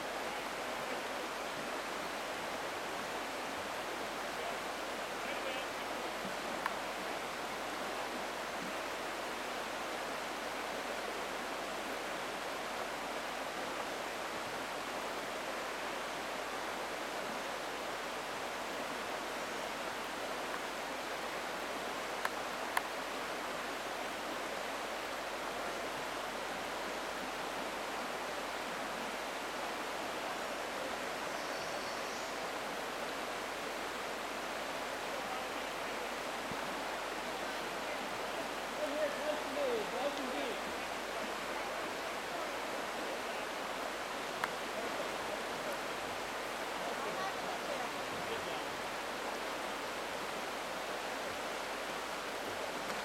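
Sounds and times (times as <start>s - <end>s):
water rushing over rocks: 0.0s - 31.3s, 32.2s - 53.0s
faint clicks: 6.2s - 6.8s, 22.2s - 22.9s, 44.4s - 44.6s.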